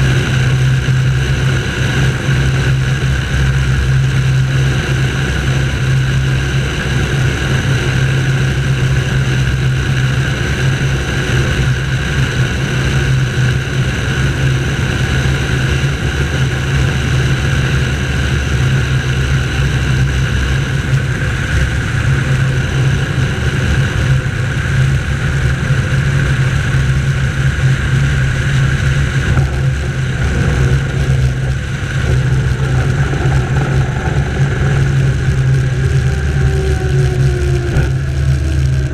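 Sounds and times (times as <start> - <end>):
propeller aircraft engine drone: 0.0 - 38.9.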